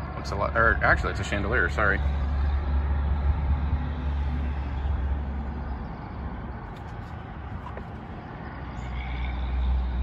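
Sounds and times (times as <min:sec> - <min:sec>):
wind blowing on microphone: 0:01.0 - 0:08.5.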